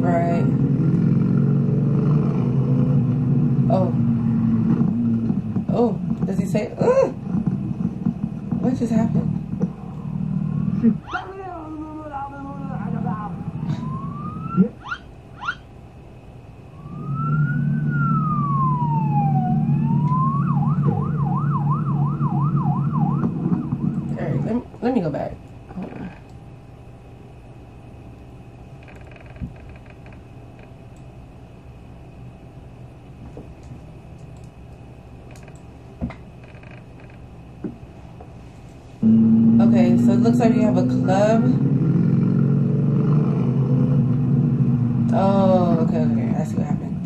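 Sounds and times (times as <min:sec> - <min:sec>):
steady low hum: 0:00.0 - 0:47.0
emergency vehicle siren: 0:13.3 - 0:15.6, 0:16.7 - 0:24.2, 0:39.0 - 0:42.8.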